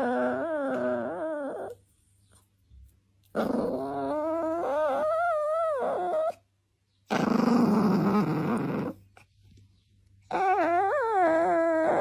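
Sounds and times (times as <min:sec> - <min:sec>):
dog growling: 0:00.0 - 0:01.8, 0:03.3 - 0:06.4, 0:07.1 - 0:09.1, 0:10.3 - 0:12.0
dog whining: 0:00.0 - 0:01.8, 0:03.3 - 0:06.5, 0:07.1 - 0:09.3, 0:10.2 - 0:12.0.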